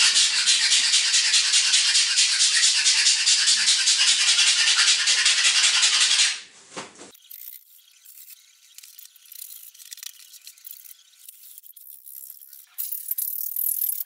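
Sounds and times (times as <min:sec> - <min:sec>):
brush scrubbing on wall: 0:00.0 - 0:06.4.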